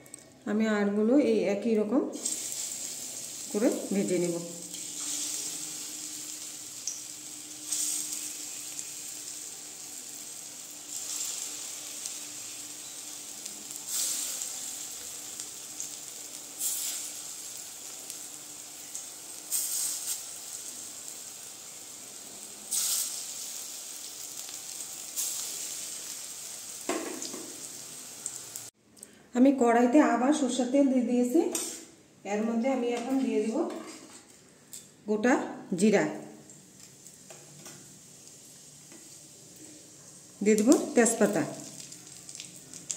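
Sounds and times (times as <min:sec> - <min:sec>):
oil sizzling: 0:02.1 - 0:28.8, 0:36.2 - 0:42.9
batter dropped into hot oil: 0:26.8 - 0:27.7.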